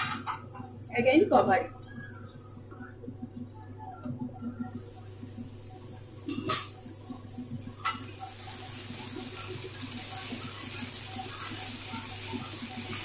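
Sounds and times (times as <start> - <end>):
vegetables sizzling in oil: 4.8 - 13.0.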